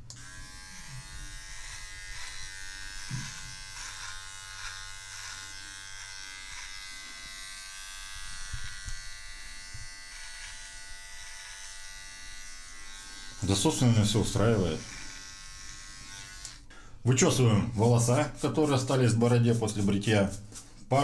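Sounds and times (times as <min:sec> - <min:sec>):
trimmer cutting strokes: 0:00.1 - 0:16.6
electric beard trimmer buzzing: 0:00.1 - 0:16.7.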